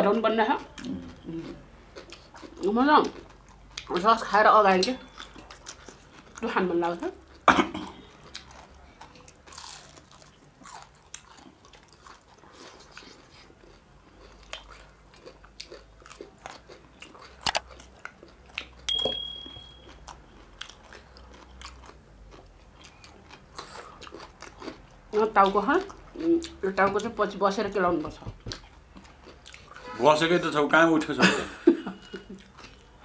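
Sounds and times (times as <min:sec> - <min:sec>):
chewing and crunching food: 0:00.1 - 0:18.9, 0:19.8 - 0:29.9, 0:32.0 - 0:33.0
brief high tone: 0:18.9 - 0:19.9.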